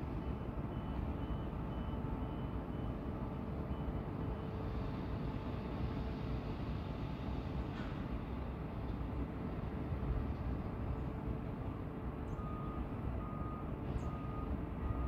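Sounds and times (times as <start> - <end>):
truck reversing alarm beeps: 0.0 - 6.6, 11.2 - 15.0.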